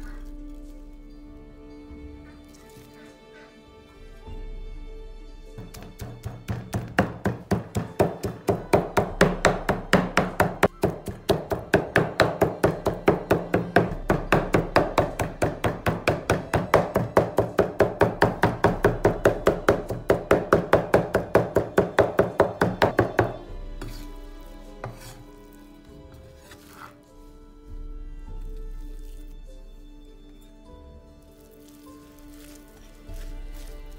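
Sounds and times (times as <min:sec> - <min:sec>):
background music: 0:00.0 - 0:33.9
knife chopping on wooden board: 0:05.6 - 0:24.0, 0:24.8 - 0:25.2.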